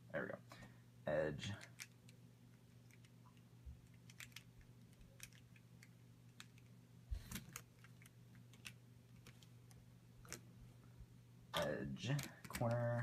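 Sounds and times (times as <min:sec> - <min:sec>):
plastic cube pieces clicking: 0:01.5 - 0:03.2, 0:03.8 - 0:09.5, 0:12.1 - 0:13.0.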